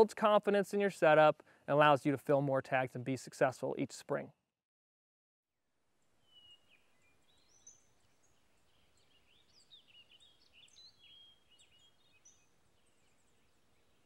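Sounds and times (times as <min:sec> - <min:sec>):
songbirds chirping and whistling: 0:06.2 - 0:14.0.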